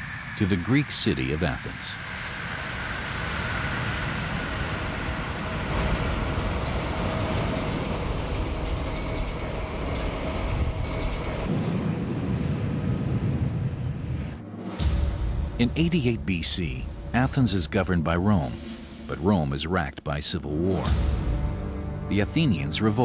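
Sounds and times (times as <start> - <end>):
vehicle rumble: 0.0 - 23.0.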